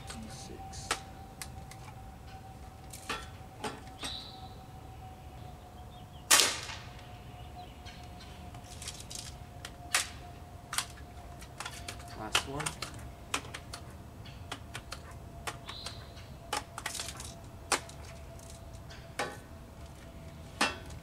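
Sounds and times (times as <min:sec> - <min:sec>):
air rifle shot crack: 0:06.3 - 0:06.8.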